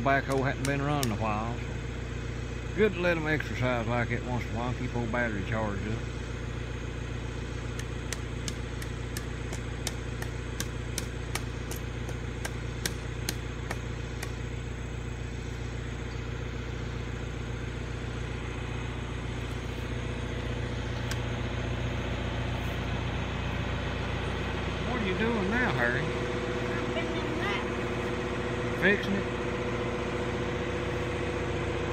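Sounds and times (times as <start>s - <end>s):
backhoe engine idling: 0.0s - 31.9s
sharp clicks: 0.2s - 1.2s.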